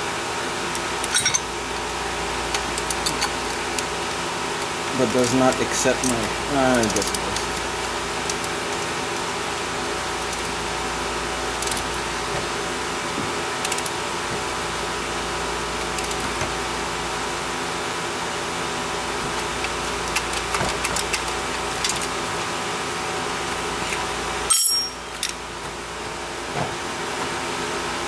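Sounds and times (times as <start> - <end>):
steady machine hum: 0.0 - 28.0
metal clicks of hand tools: 5.5 - 7.5.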